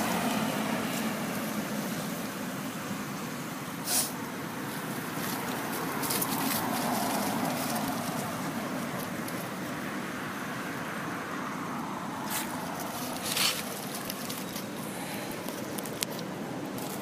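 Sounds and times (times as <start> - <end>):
outdoor background noise: 0.0 - 17.0
dry leaves crackling: 4.6 - 10.0, 12.0 - 17.0.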